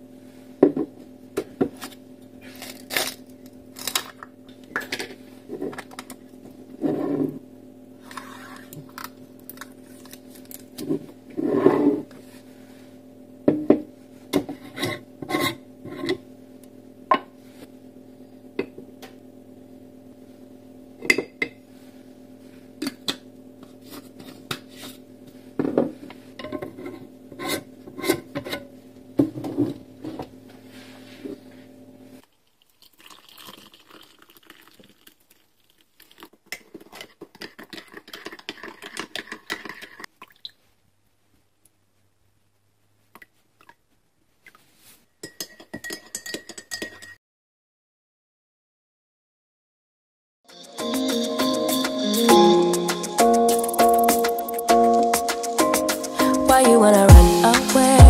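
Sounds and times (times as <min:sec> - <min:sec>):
glass jars clinking: 0:45.2 - 0:47.2
spoon clinking against mug: 0:45.2 - 0:47.2.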